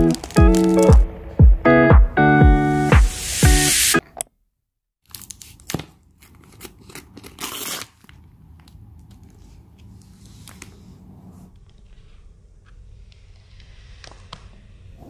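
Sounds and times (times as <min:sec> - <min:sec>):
plastic wrapping crinkling and tearing: 0:00.0 - 0:01.1, 0:05.0 - 0:08.7.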